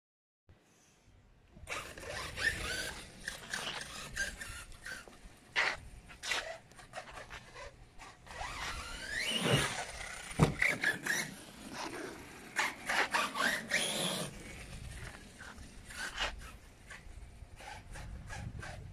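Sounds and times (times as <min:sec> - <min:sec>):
electric motor whining: 0:01.6 - 0:05.2, 0:07.0 - 0:17.0.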